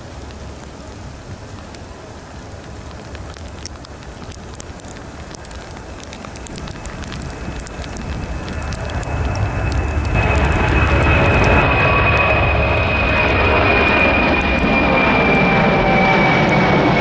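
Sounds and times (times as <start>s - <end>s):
jet engines rumbling with crackles: 0.0s - 17.0s
steady high whine: 4.0s - 17.0s.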